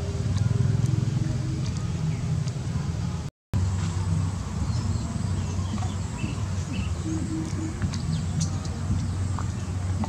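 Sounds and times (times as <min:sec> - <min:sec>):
steady low rumble: 0:00.0 - 0:10.0
small birds chirping: 0:04.6 - 0:10.0.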